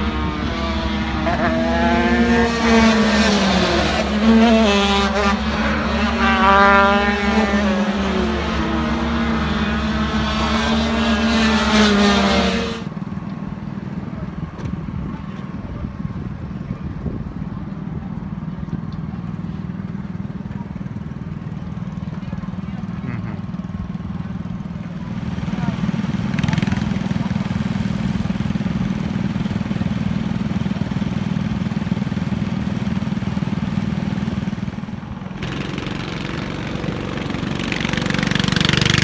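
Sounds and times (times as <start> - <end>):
kart engine revving: 0.0 - 13.0, 22.9 - 39.0.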